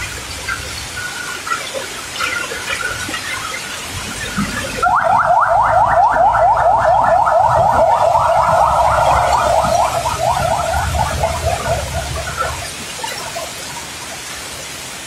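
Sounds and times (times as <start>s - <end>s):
heavy rain hissing: 0.0s - 15.0s
vehicle alarm chirping: 4.8s - 12.6s.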